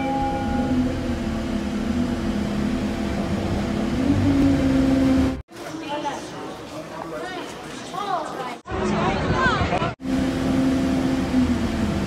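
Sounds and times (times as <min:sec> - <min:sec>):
bell chime: 0:00.0 - 0:01.0
motor vehicle engine humming: 0:00.0 - 0:05.4, 0:10.0 - 0:12.0.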